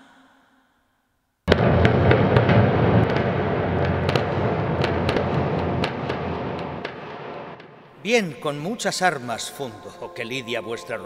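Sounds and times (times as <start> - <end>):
timpani roll: 1.5 - 8.2.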